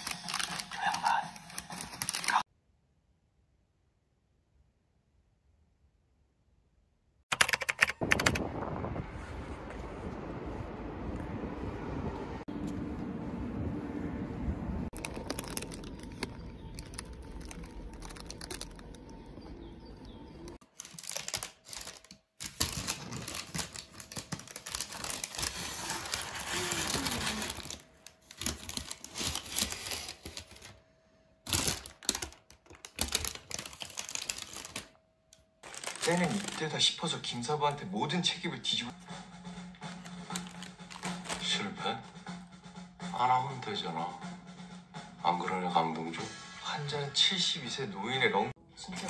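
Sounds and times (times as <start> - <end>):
paper bag crinkling: 0.0 - 2.5, 14.9 - 35.0, 35.6 - 37.2, 39.9 - 41.6
street background noise: 9.0 - 20.6.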